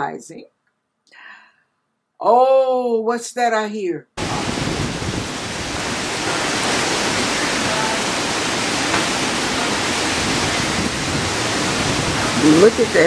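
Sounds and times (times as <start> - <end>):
heavy rain: 4.2 - 13.0
storm wind: 4.2 - 13.0.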